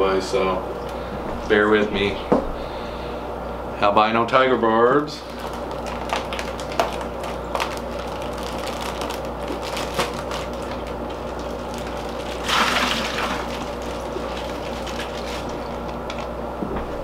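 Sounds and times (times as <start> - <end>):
plastic bag crinkling: 5.2 - 16.4
water pouring into bucket: 11.8 - 15.3.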